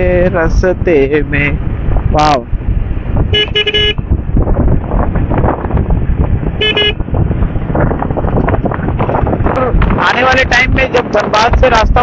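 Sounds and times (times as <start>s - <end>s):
wind and road noise: 0.0s - 12.0s
short horn beeps: 3.3s - 4.0s, 6.6s - 7.0s.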